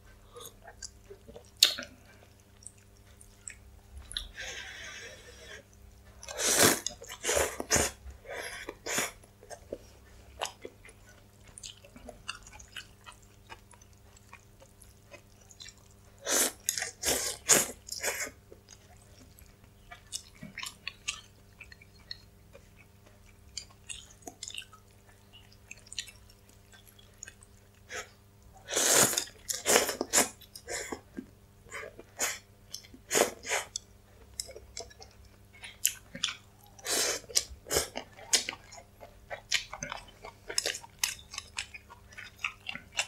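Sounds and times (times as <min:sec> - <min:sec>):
noodle slurps: 0:06.3 - 0:08.0, 0:28.7 - 0:30.4
wet chewing: 0:31.9 - 0:43.0.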